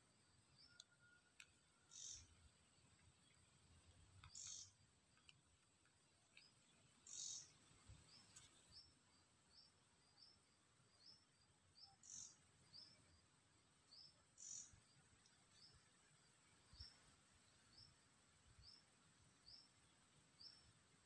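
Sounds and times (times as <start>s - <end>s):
bird chirping high: 1.9s - 2.3s, 4.3s - 4.7s, 7.0s - 7.5s.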